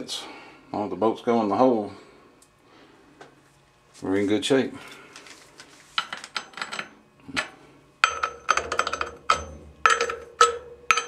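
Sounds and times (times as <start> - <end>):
steel bolt clanking on steel plate: 6.4 - 11.0.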